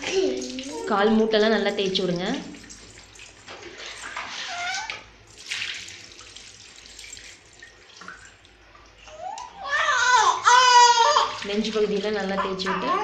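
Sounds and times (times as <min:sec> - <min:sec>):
water splashing onto tiled floor: 0:00.0 - 0:00.9, 0:01.8 - 0:08.6, 0:11.2 - 0:12.2
baby high-pitched vocal sound: 0:09.1 - 0:11.3.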